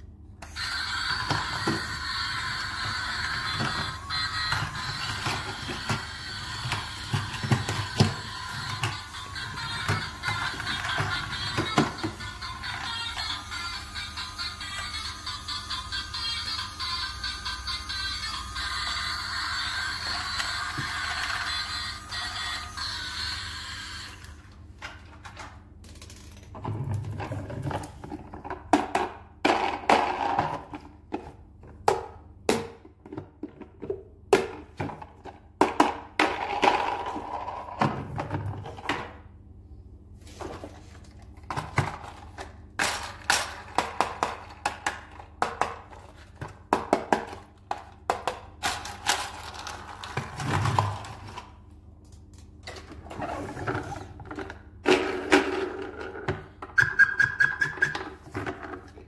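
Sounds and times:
electronic toy tune: 0.5 - 7.2, 7.8 - 24.3.

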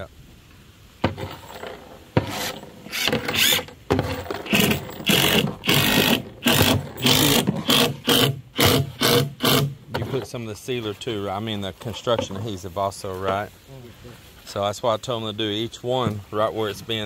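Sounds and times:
power drill driving screws into wood: 2.2 - 9.8.

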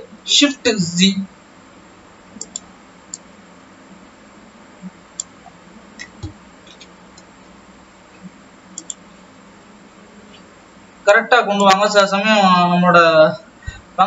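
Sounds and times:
faint steady hum: 0.0 - 14.0
mouse and keyboard clicks: 2.4 - 3.2, 8.8 - 9.0.

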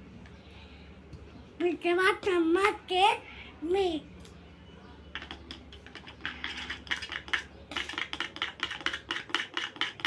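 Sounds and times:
toy spoon clicking in plastic pot: 5.1 - 10.0.

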